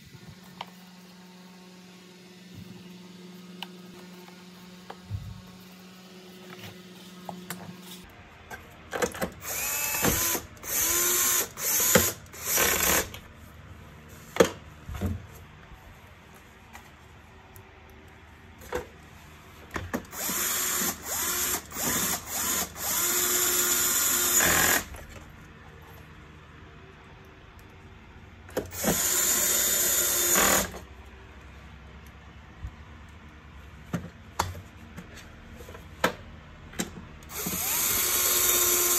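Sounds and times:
electric screwdriver running: 0:09.4 - 0:13.2, 0:20.1 - 0:25.0, 0:28.7 - 0:30.8, 0:37.3 - 0:38.9.

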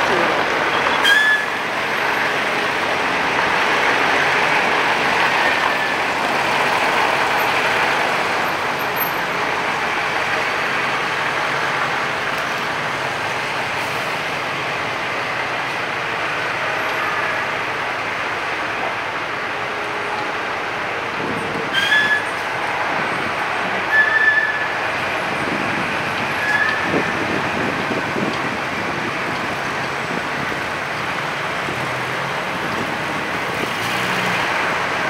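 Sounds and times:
street traffic noise: 0:00.0 - 0:35.0.

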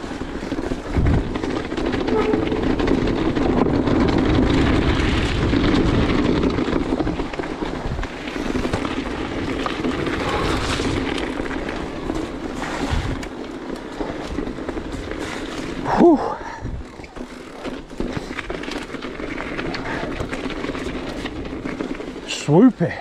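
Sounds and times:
wind buffeting microphone: 0:00.0 - 0:17.2
bike rattling over stony trail: 0:00.0 - 0:23.0.

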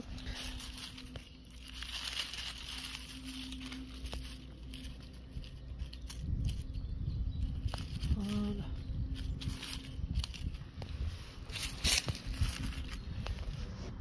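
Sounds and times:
dry leaves rustling: 0:00.0 - 0:14.0.

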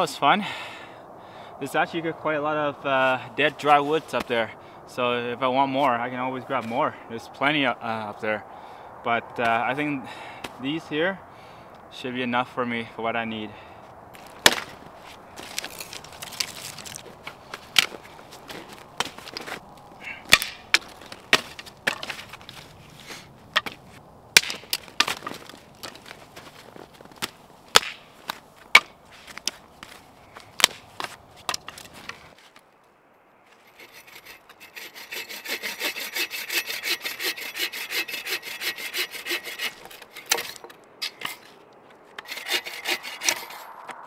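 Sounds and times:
dry branches snapping: 0:14.1 - 0:22.8, 0:23.5 - 0:32.7
hand saw rasping through wood: 0:15.4 - 0:17.0, 0:33.7 - 0:41.5, 0:42.2 - 0:43.7.

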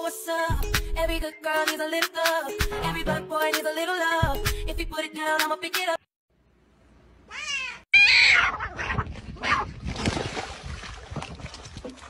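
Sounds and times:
cat meowing and yowling: 0:07.3 - 0:09.7
water splashing: 0:09.3 - 0:12.0.

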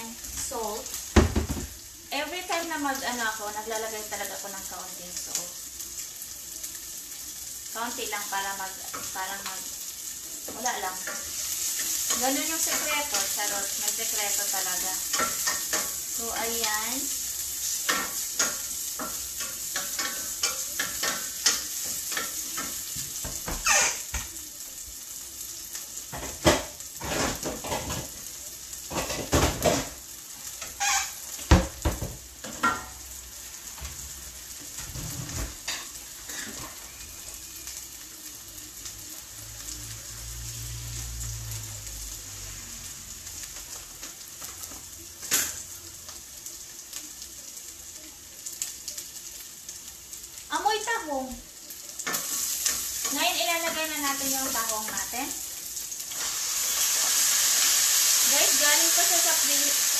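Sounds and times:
food sizzling in hot oil: 0:00.0 - 0:59.9
spatula clattering against pan: 0:17.9 - 0:22.8.

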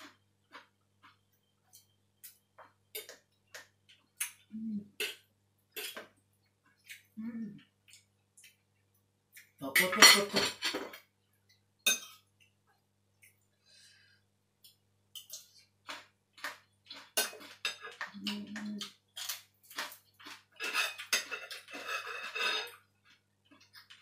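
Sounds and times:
spoon and tongs clinking on a bowl: 0:09.6 - 0:11.0, 0:11.9 - 0:12.2, 0:16.9 - 0:22.8.

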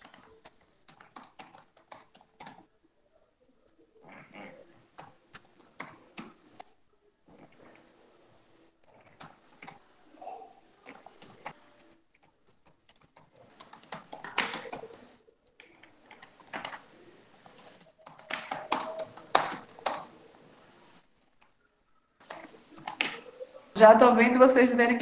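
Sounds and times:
typing on a computer keyboard: 0:00.0 - 0:02.7, 0:12.2 - 0:20.2.

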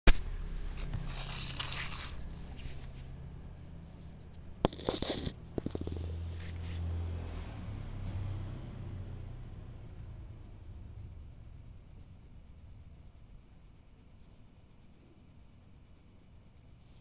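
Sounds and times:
rustling food on plastic plate: 0:00.1 - 0:03.1, 0:04.6 - 0:06.6.

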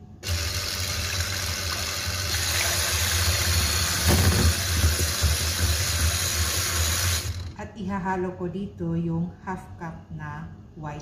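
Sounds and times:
electric hand mixer whipping: 0:00.2 - 0:07.6.

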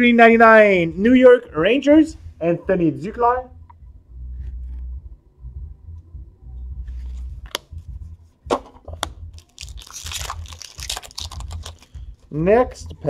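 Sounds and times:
wrapper crinkling and tearing: 0:09.4 - 0:12.0.

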